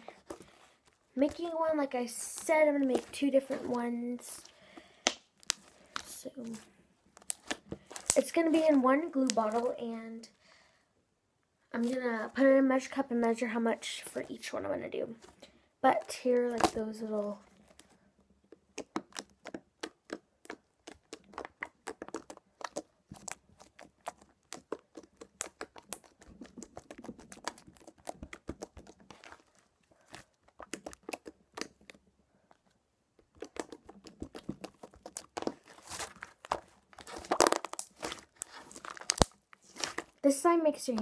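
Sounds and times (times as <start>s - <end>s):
slime squeezed by hand popping: 18.7s - 29.4s, 33.3s - 40.1s.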